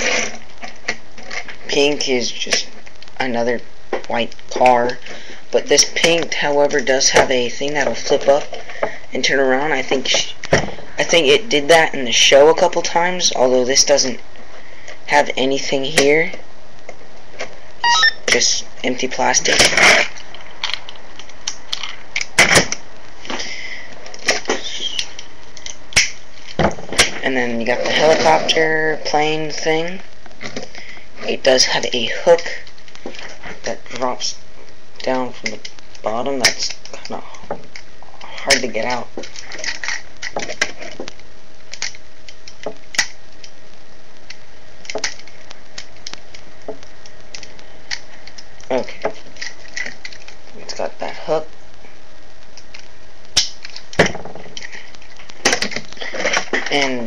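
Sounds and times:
steady hiss: 0.0 - 57.0
plastic toy parts clicking: 41.7 - 43.5, 52.6 - 56.8.

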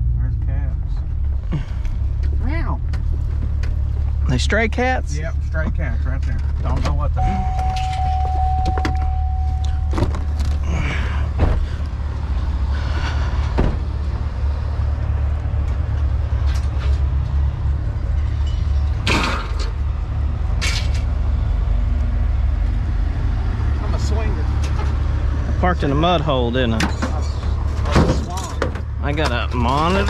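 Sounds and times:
vehicle engine idling: 0.0 - 19.1
steady tone: 7.2 - 10.6
knocks and clanks: 13.4 - 14.0, 26.8 - 30.0.

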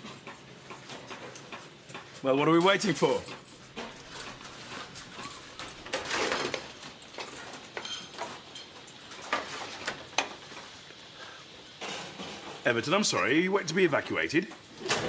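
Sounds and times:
pans and utensils clattering: 0.0 - 10.8, 11.8 - 12.7.

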